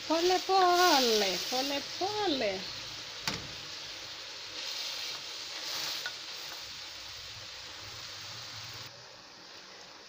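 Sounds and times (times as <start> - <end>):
greens sizzling in a pot: 0.0 - 10.0
leaves rustling under a spoon: 0.1 - 2.6.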